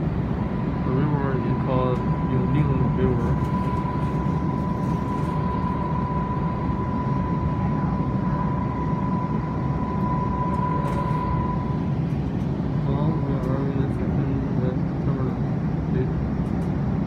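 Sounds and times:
steady high whine: 0:00.0 - 0:17.0
train cabin low rumble: 0:00.0 - 0:17.0.

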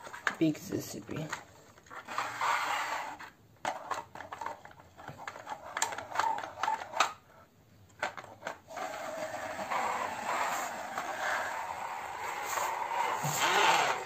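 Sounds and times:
plastic toy clicks and clacks: 0:03.6 - 0:07.2, 0:07.9 - 0:09.8.

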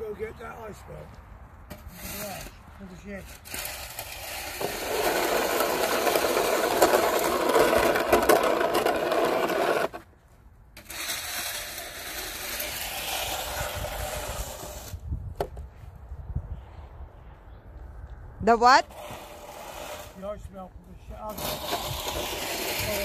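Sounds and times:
snow shovel scraping asphalt: 0:01.7 - 0:10.1, 0:10.8 - 0:15.1, 0:18.8 - 0:23.0.

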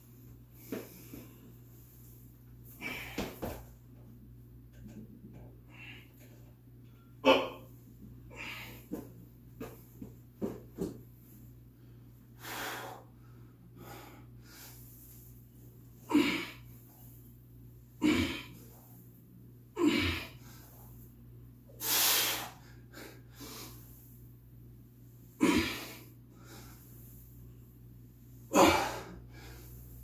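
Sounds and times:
man breathing forcefully: 0:12.4 - 0:15.2, 0:21.8 - 0:24.0.

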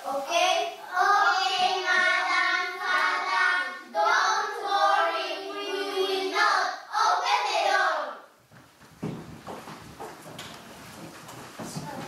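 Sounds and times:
children singing: 0:00.1 - 0:08.3.

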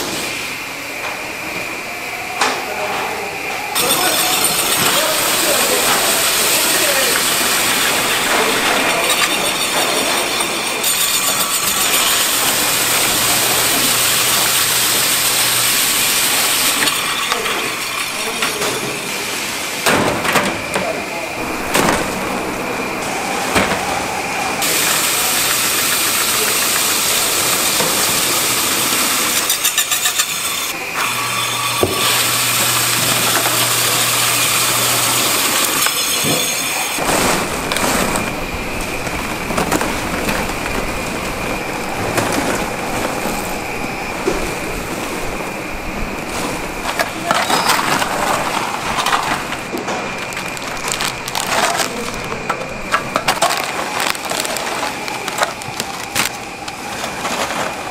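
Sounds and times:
electric fans: 0:00.0 - 0:57.9
factory machinery running: 0:00.0 - 0:57.9
crunchy pieces clattering: 0:35.8 - 0:44.4, 0:46.4 - 0:57.9.

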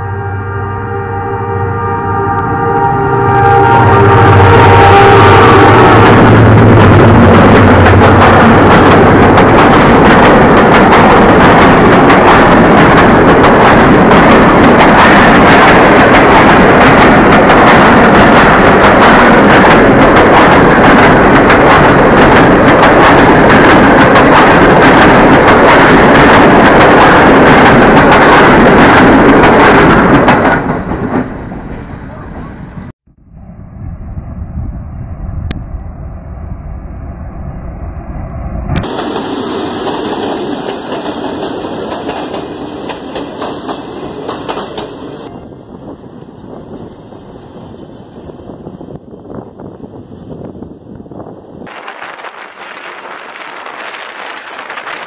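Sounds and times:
train horn chord: 0:00.0 - 0:06.2
train rumble: 0:00.0 - 0:55.0.

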